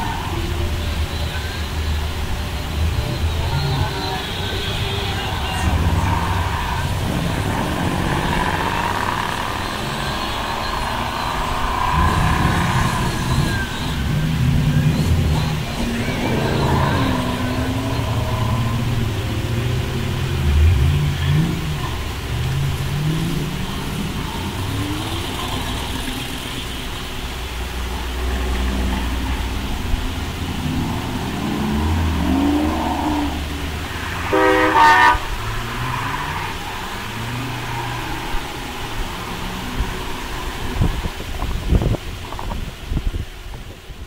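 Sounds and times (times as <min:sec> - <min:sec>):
car engines revving: 0:00.0 - 0:44.0
car horn toot: 0:34.2 - 0:35.4.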